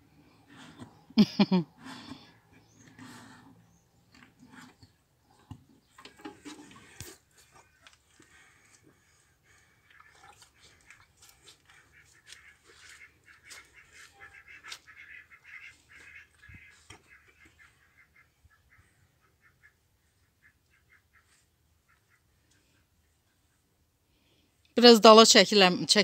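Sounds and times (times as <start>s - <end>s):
ducks calling: 8.3s - 22.4s.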